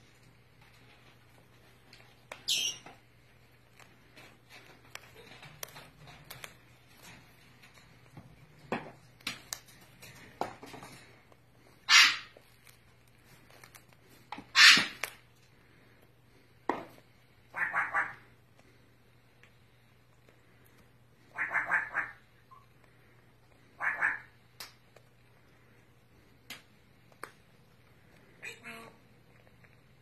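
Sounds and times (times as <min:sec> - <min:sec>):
bird beak crunching pumpkin: 0:00.2 - 0:16.0
loud harsh bird noises: 0:11.9 - 0:12.3, 0:14.5 - 0:15.0.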